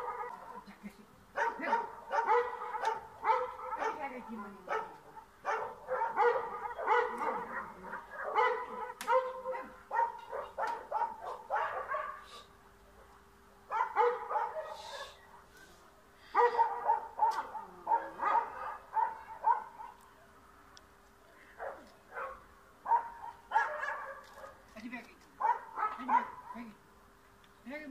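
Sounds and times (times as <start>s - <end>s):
small dog barking: 0.0s - 0.6s, 1.4s - 12.3s, 13.7s - 15.5s, 16.3s - 20.0s, 21.6s - 24.6s, 25.4s - 26.7s.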